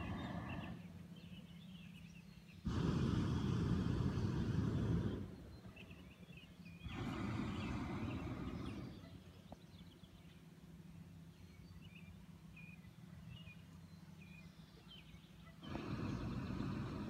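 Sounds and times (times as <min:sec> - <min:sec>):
propane burner roaring: 0:00.0 - 0:01.4, 0:02.6 - 0:09.6, 0:15.6 - 0:17.0
small birds chirping: 0:00.0 - 0:17.0.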